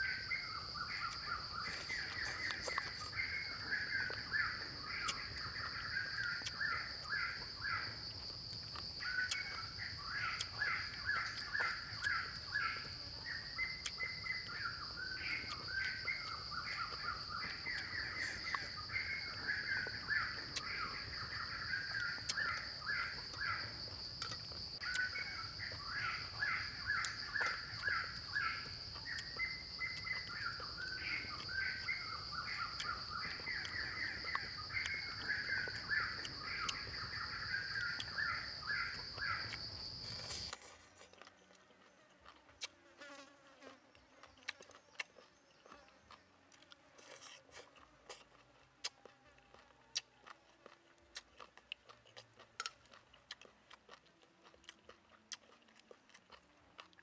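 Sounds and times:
high insect drone: 0:00.0 - 0:40.8.

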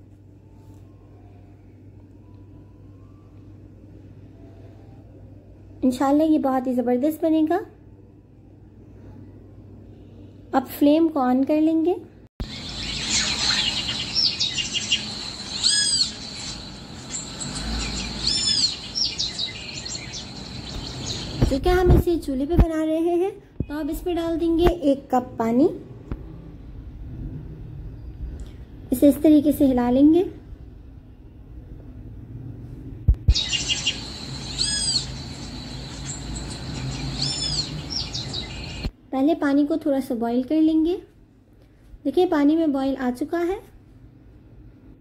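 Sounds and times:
faint low hum: 0:00.0 - 0:45.0
bird arched calls: 0:12.4 - 0:21.4, 0:33.3 - 0:38.9
birds chirping: 0:12.4 - 0:21.9, 0:33.3 - 0:38.9.

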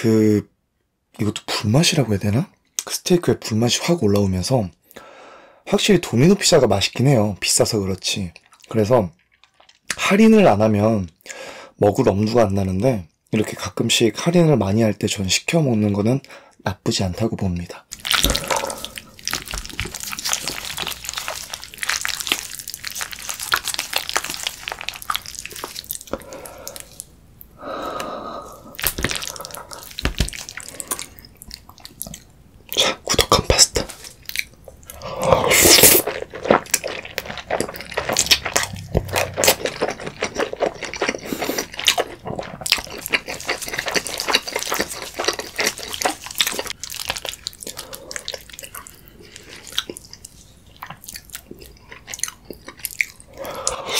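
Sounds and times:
wet mouth sounds eating: 0:17.9 - 0:53.9.

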